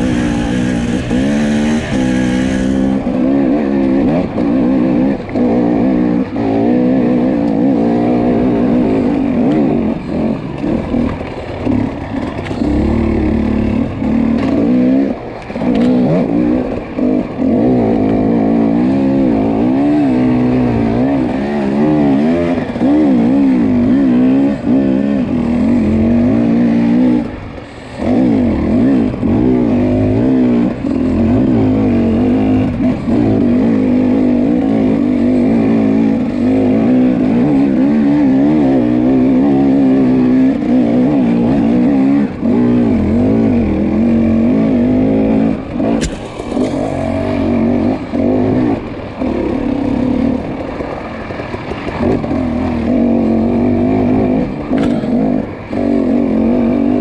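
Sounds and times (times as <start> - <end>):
dirt bike engine revving: 0.0 - 57.0
sharp click: 46.0 - 47.0.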